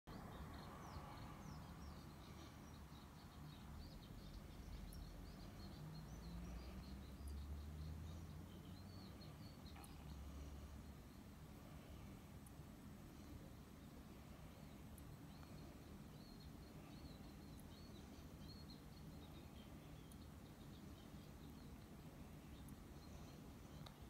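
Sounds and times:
low steady hum: 0.1 - 24.0
small birds chirping: 0.1 - 24.0.

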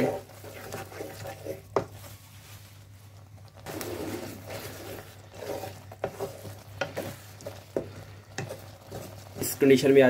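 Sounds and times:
wooden spatula stirring in a pan: 0.0 - 10.0.

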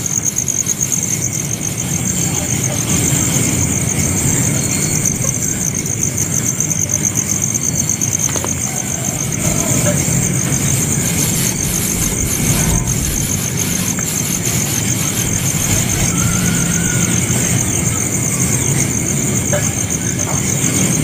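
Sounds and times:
insect drone: 0.0 - 21.0
low hum: 9.1 - 19.2.

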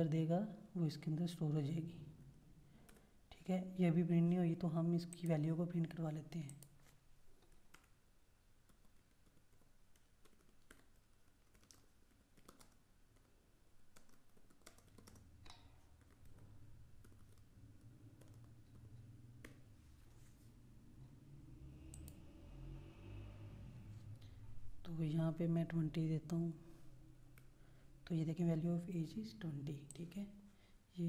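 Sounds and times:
computer keyboard clicks: 6.4 - 8.0, 8.6 - 13.3, 13.9 - 19.6.

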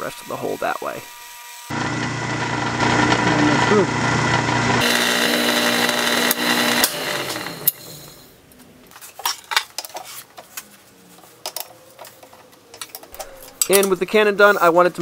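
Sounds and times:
lathe drilling metal: 1.7 - 8.2.

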